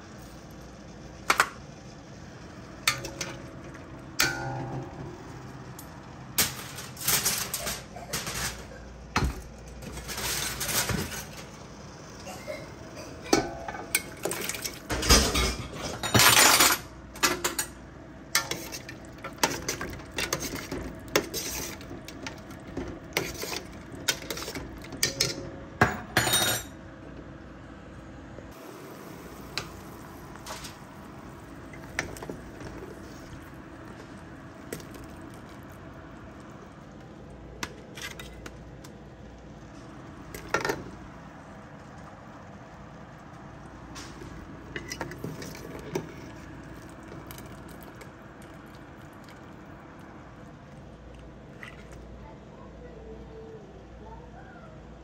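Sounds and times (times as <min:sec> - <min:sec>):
metal utensils clattering on pot: 0:06.4 - 0:11.6, 0:12.2 - 0:26.8, 0:44.0 - 0:47.8.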